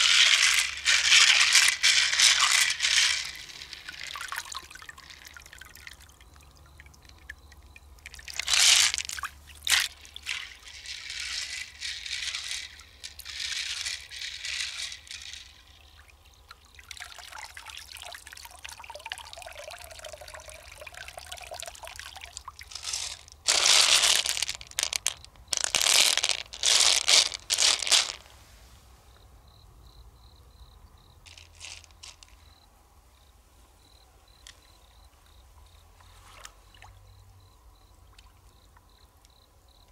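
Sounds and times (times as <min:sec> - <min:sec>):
water splashing and sloshing: 0:00.0 - 0:28.6
faint water trickle: 0:03.3 - 0:11.2, 0:14.7 - 0:23.5, 0:33.2 - 0:39.9.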